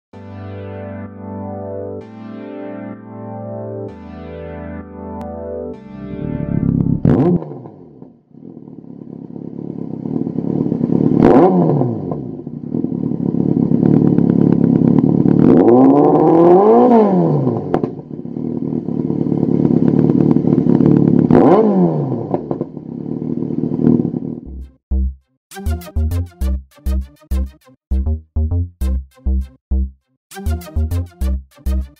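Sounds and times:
motorcycle engine idling and revving: 0:06.2 - 0:25.1.

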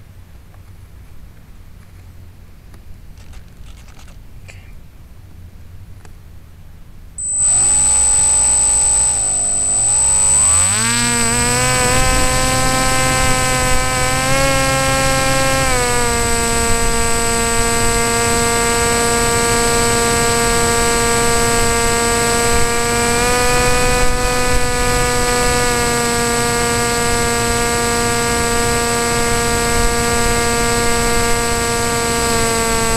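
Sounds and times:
model airplane motor and propeller: 0:03.1 - 0:04.2, 0:07.2 - 0:32.9
steady high whistle: 0:07.2 - 0:13.8.

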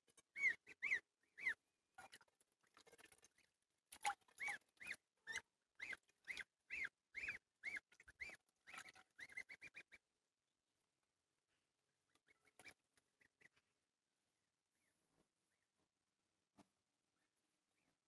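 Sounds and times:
goslings peeping: 0:00.2 - 0:01.6, 0:04.3 - 0:10.0.

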